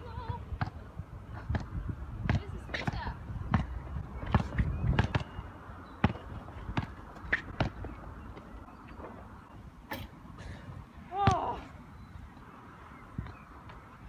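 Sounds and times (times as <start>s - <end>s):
basketball bouncing on hard court: 1.5s - 5.4s, 6.0s - 7.9s.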